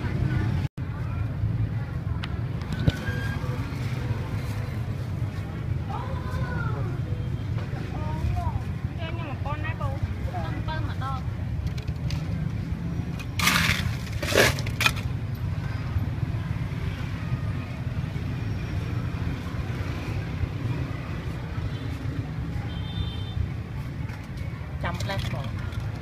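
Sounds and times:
street background rumble: 0.0 - 26.0
loud crunching or rustling: 13.2 - 15.2.

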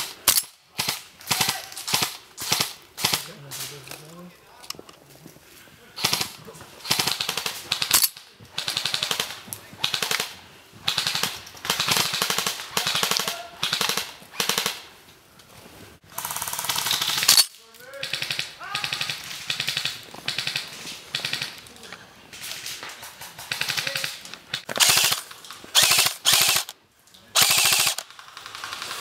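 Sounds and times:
airsoft gun bursts: 23.4 - 26.8, 27.4 - 29.0.

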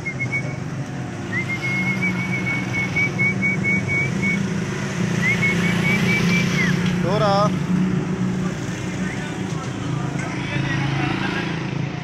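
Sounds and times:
person whistling a trill: 0.0 - 0.6, 1.3 - 4.5, 5.2 - 6.8.

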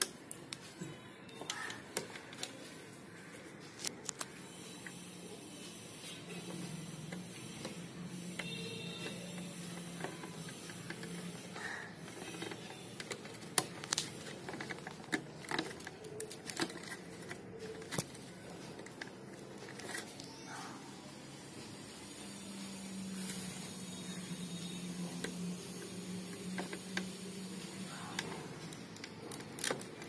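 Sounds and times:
plastic connectors clicking: 3.8 - 5.0, 8.4 - 20.3, 28.1 - 30.0.

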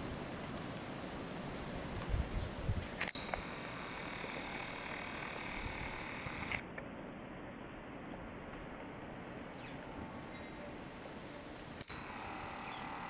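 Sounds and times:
faint outdoor background hiss: 0.0 - 13.0
sharp click: 3.0 - 3.4.

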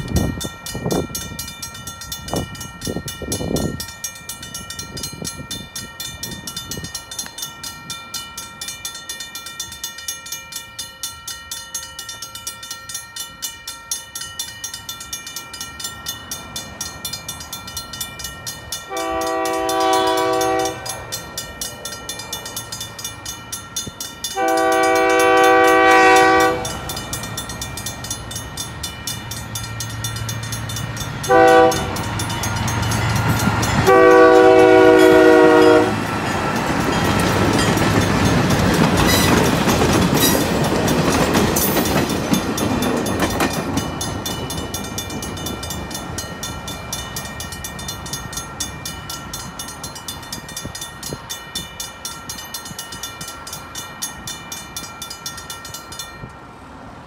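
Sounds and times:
crossing bells clanging: 0.0 - 57.0
locomotive horn blasts: 18.9 - 21.0, 24.4 - 26.9, 31.3 - 32.1, 33.8 - 36.1.

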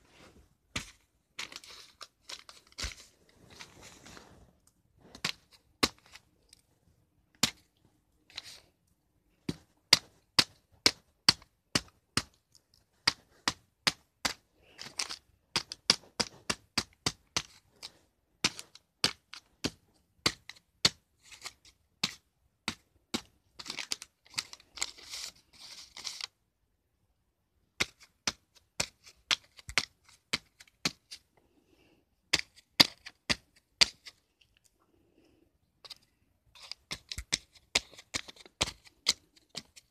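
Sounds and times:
paper crinkling: 0.0 - 6.6, 23.6 - 26.3
pen tapping into paper: 13.0 - 17.6, 27.8 - 31.0, 36.6 - 39.9.

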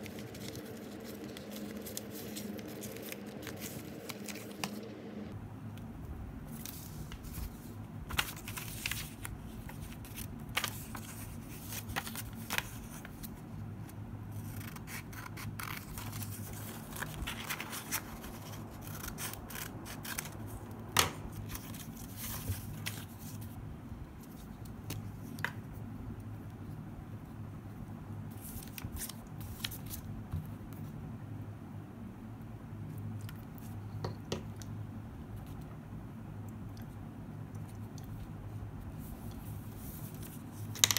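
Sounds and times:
paper rustling: 0.0 - 4.9, 6.5 - 13.4, 14.4 - 23.6.

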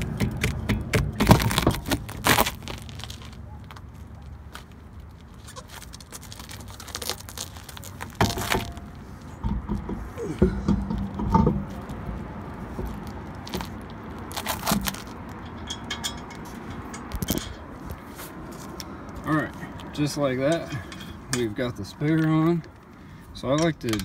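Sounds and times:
wheel knocks and thuds: 8.2 - 11.9
metallic clinking: 13.6 - 17.8.

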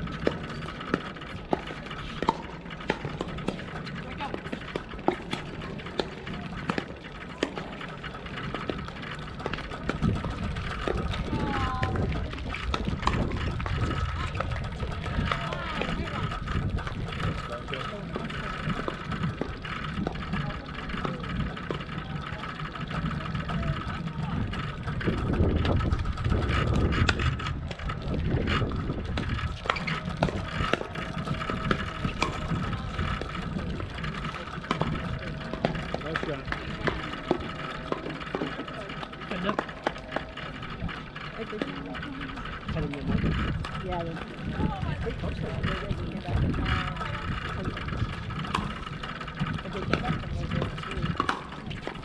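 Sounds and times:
low steady rumble: 0.0 - 52.0
paddles hitting plastic ball: 48.4 - 52.0.

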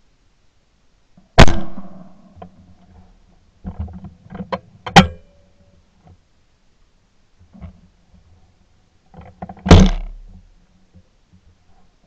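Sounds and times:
shotgun shot: 1.4 - 2.1, 9.7 - 10.1.

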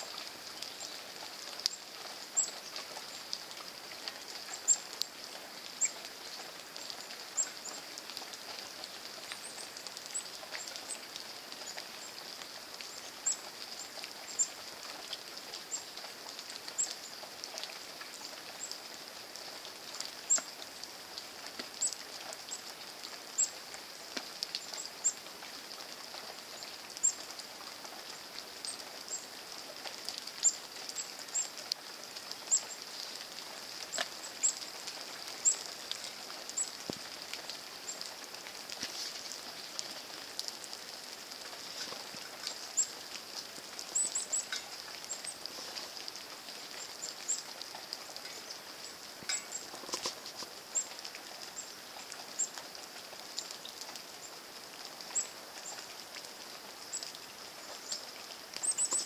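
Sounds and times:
hiss of falling rain: 0.0 - 59.0
sharp drip ticks: 0.1 - 1.8, 19.4 - 25.2, 25.8 - 53.9.

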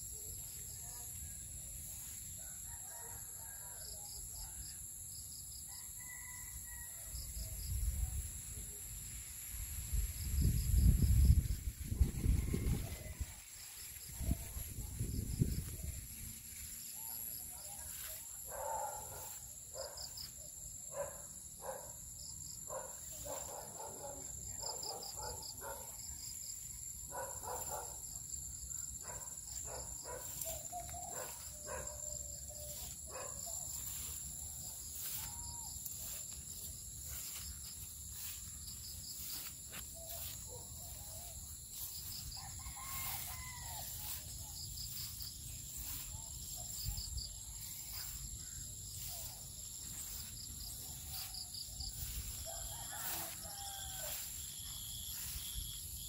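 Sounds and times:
insects buzzing and chirping: 0.0 - 56.0
rooster crowing: 2.4 - 4.2, 5.7 - 7.2, 12.0 - 13.4, 40.9 - 45.1, 51.1 - 55.3
corn leaves rustling: 11.0 - 20.4, 29.4 - 56.0
chickens calling: 39.2 - 46.1.

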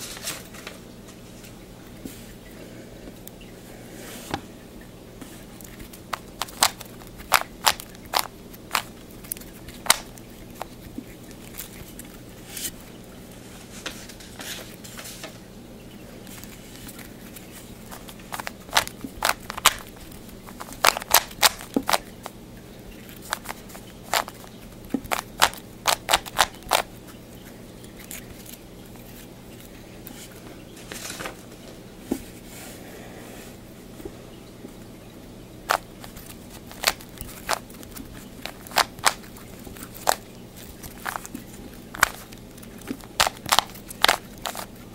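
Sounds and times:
faint low hum: 0.0 - 44.9
puzzle cube clicking as turned: 5.7 - 10.7, 18.0 - 22.1, 23.3 - 26.9, 35.7 - 44.7.

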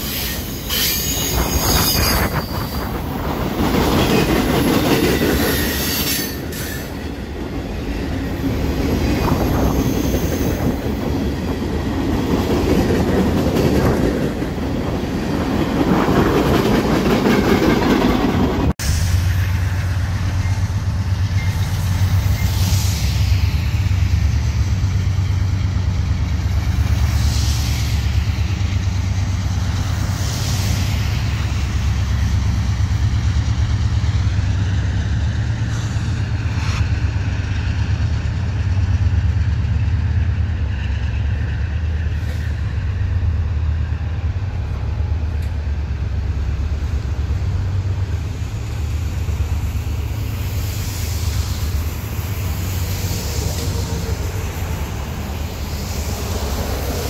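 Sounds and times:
train air hissing: 0.0 - 3.5, 18.8 - 25.5, 26.4 - 32.8, 40.9 - 43.2, 46.8 - 57.0
freight train rumbling past: 0.0 - 57.0.

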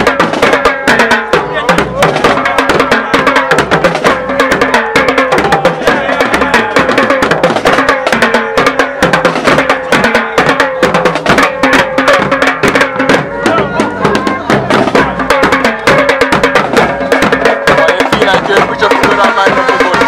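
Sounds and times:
marching drumline: 0.0 - 20.0.

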